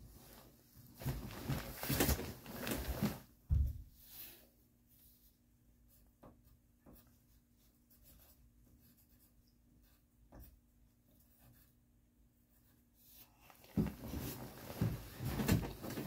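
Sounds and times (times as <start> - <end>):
soft rustles: 0.0 - 3.4, 13.1 - 16.0.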